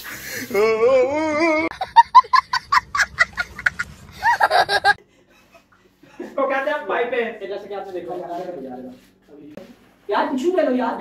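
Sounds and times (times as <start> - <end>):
child wavering vocal: 0.5 - 1.7
young child laughing: 1.5 - 5.0.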